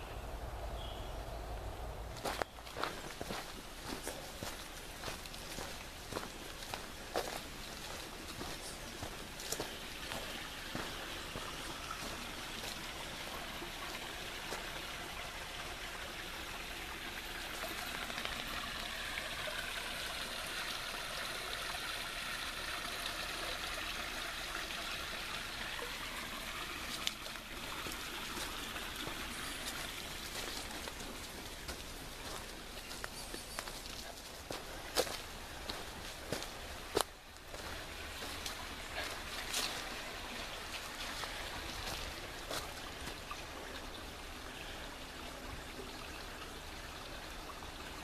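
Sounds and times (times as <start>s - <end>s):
stream water rushing: 0.4s - 48.0s
footsteps on trail: 2.1s - 13.5s, 26.9s - 40.1s, 40.8s - 43.3s.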